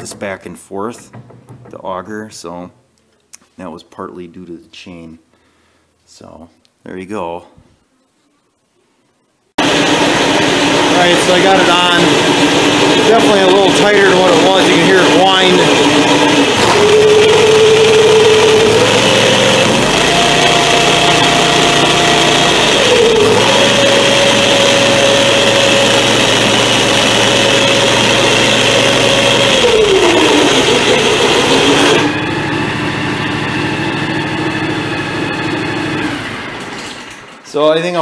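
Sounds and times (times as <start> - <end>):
tractor running: 9.6 - 37.4
drive chain whine: 9.6 - 37.5.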